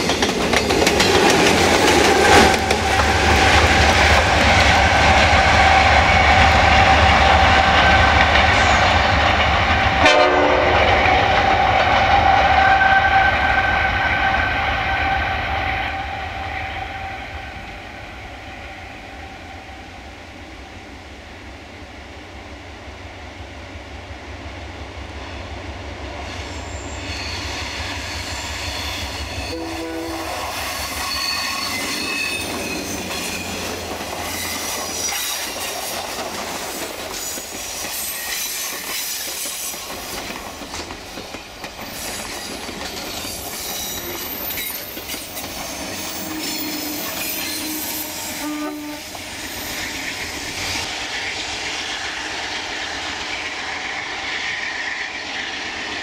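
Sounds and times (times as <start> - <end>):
train wheels clicking on rail joints: 0.0 - 13.2, 30.4 - 48.4
wheel flanges squealing: 26.5 - 35.7, 41.8 - 50.8.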